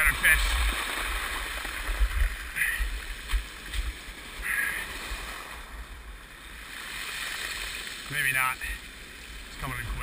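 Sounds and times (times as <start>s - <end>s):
wind buffeting microphone: 0.0s - 6.2s
ocean surf washing over shore: 0.0s - 10.0s.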